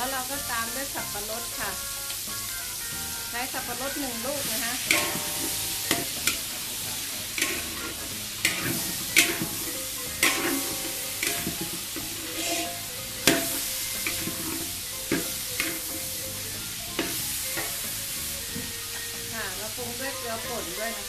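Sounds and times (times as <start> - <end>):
hot oil sizzling: 0.0 - 21.0
metal spatula scraping a wok: 4.2 - 18.8.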